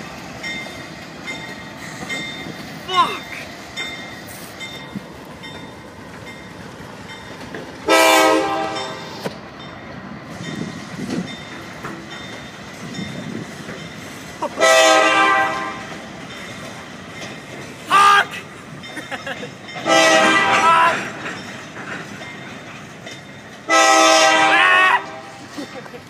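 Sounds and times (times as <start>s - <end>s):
train running: 0.0s - 26.0s
locomotive horn blasts: 7.9s - 9.2s, 14.6s - 16.0s, 19.8s - 21.0s, 23.7s - 25.4s.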